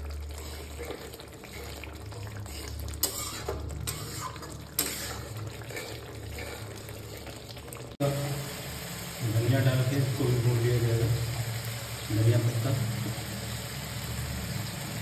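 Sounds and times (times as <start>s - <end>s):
masala sizzling in oil: 0.0s - 15.0s
metal spatula scraping pan: 0.3s - 7.4s.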